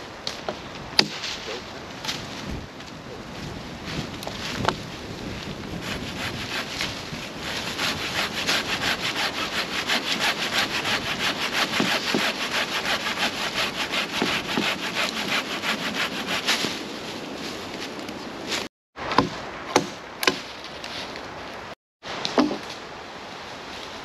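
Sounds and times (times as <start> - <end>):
hand saw cutting wood: 5.8 - 16.8.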